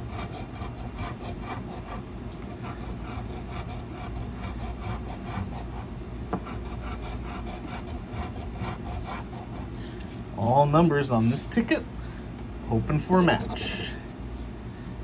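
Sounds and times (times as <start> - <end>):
coin scraping scratch card: 0.1 - 5.9.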